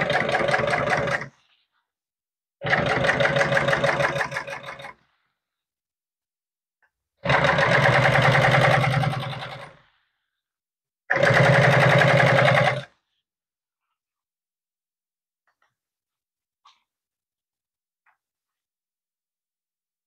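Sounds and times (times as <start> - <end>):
sewing machine stitching: 0.0 - 1.4, 2.6 - 5.0, 7.2 - 9.8, 11.1 - 12.9.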